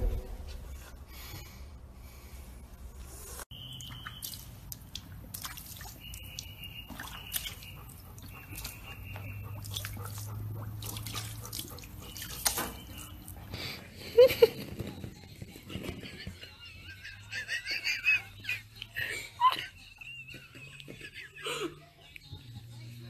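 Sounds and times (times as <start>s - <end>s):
water splashing in paddling pool: 3.7s - 13.4s.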